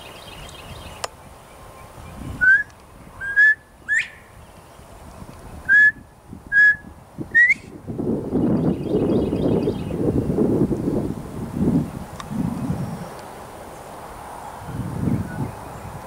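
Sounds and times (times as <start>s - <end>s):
bird whistling call: 2.2s - 4.4s, 5.6s - 7.8s.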